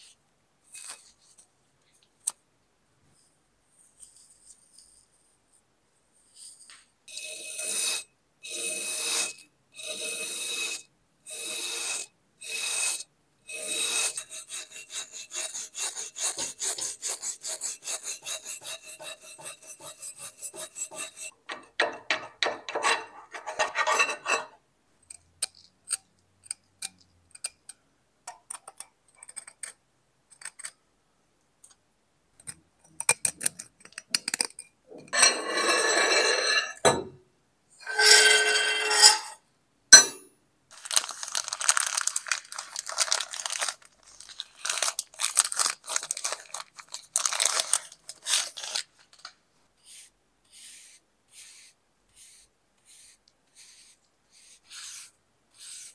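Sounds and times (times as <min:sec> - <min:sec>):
rubbing strokes on knife: 0:06.2 - 0:21.4, 0:37.8 - 0:39.4, 0:49.8 - 0:55.9
light scrapes and ticks: 0:17.9 - 0:27.8.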